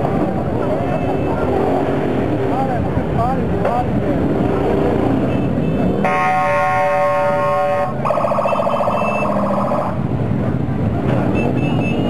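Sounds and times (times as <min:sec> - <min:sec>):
motorcycle engines running: 0:00.0 - 0:12.0
warbling siren-like horn: 0:06.0 - 0:10.0.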